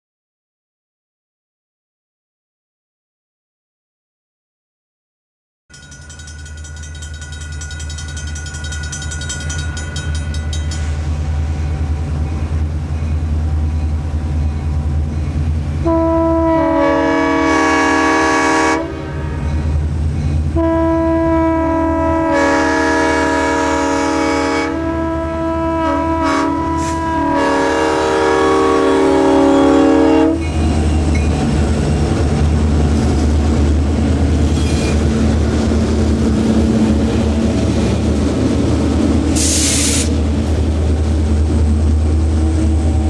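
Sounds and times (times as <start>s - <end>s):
diesel locomotive engine drone: 5.7s - 43.0s
locomotive air horn blasts: 15.8s - 19.8s, 20.5s - 30.6s, 39.4s - 40.1s.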